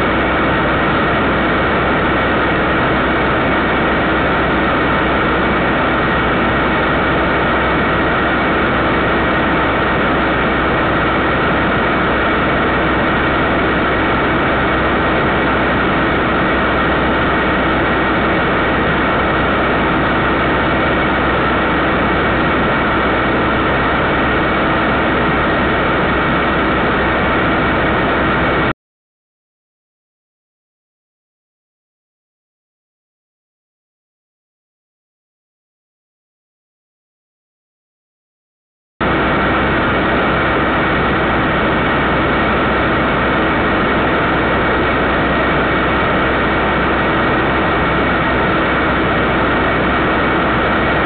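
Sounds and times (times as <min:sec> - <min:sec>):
constant hum: 0:00.0 - 0:28.7, 0:39.0 - 0:51.0
faint whine: 0:00.0 - 0:28.7, 0:39.0 - 0:51.0.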